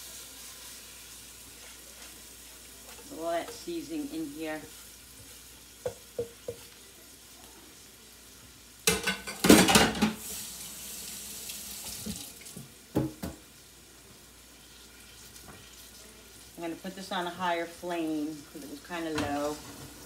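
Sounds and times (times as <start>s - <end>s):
tap water running: 0.0s - 7.0s, 8.4s - 13.6s, 18.0s - 20.0s
fish sizzling in a pan: 0.0s - 20.0s.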